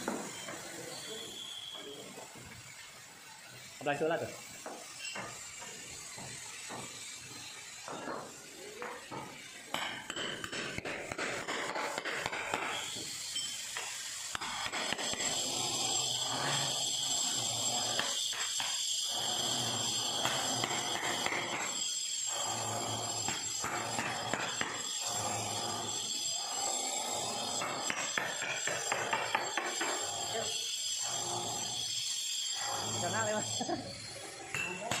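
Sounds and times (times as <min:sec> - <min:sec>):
hammer striking metal chisel: 0:09.1 - 0:15.4, 0:20.1 - 0:21.8, 0:23.0 - 0:24.9, 0:27.3 - 0:30.3, 0:34.4 - 0:35.0
blade scraping mortar: 0:09.8 - 0:35.0.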